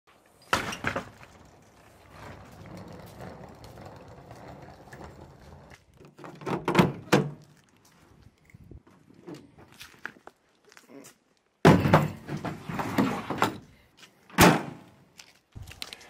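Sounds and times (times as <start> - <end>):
suitcase wheels rolling on pavement: 0.1 - 10.0.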